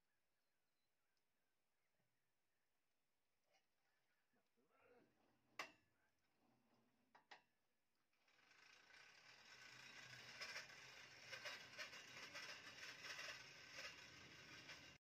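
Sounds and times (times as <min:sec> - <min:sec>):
bandsaw mill rattling and whirring: 0:08.2 - 0:15.0.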